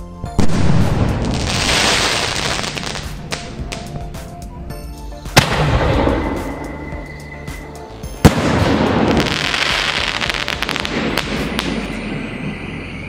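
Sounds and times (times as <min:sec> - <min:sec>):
firework stars crackling: 0:00.4 - 0:04.3, 0:05.3 - 0:13.0
firework bang: 0:05.4 - 0:07.1, 0:08.2 - 0:12.5.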